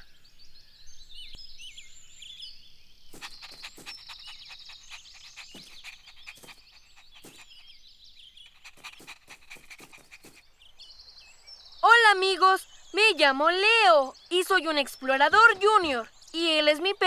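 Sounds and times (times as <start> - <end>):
birds chirping: 0.0 - 17.0
cartoon dog scampering effects: 3.2 - 7.6, 8.5 - 10.4.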